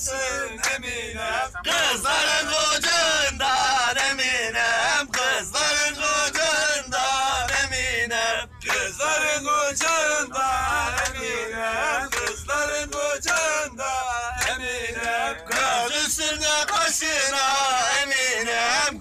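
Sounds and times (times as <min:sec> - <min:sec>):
men singing together: 0:00.0 - 0:19.0
hand clapping: 0:00.6 - 0:00.8, 0:05.1 - 0:05.4, 0:08.6 - 0:09.0, 0:09.7 - 0:10.0, 0:11.0 - 0:11.2, 0:12.1 - 0:13.5, 0:14.4 - 0:15.8, 0:16.6 - 0:16.9.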